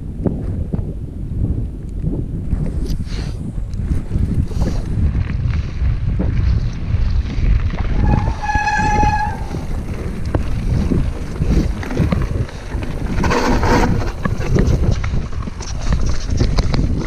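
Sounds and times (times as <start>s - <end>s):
wind buffeting microphone: 0.0s - 17.0s
bike rattling over gravel: 3.7s - 17.0s
bike clicks and knocks: 4.2s - 17.0s
high steady squeal: 7.9s - 10.0s.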